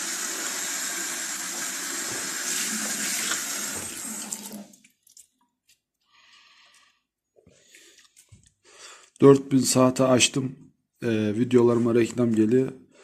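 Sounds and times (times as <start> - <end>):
tap water splashing into sink: 1.1 - 4.9.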